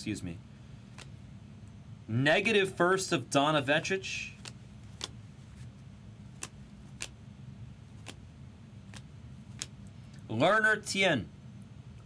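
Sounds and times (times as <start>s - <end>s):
low steady hum: 0.0s - 12.0s
trading cards flicking clicks: 4.4s - 5.2s, 6.3s - 7.2s, 8.0s - 8.2s, 8.9s - 9.8s.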